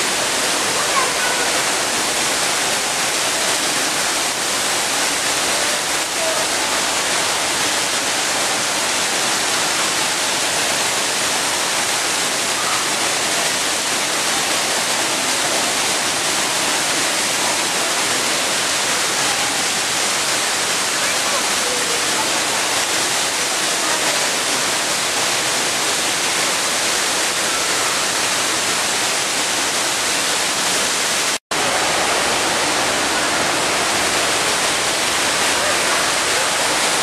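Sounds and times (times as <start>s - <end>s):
faint voices: 0.0s - 8.7s, 31.6s - 37.0s
waterfall rushing: 0.0s - 37.0s.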